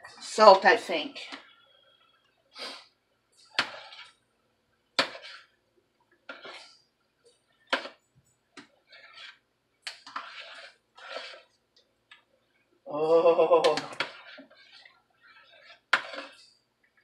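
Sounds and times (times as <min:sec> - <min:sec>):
utensil scraping and clinking in pot: 0:03.4 - 0:04.3, 0:05.0 - 0:05.6, 0:06.2 - 0:08.0, 0:08.6 - 0:11.6, 0:13.6 - 0:17.0.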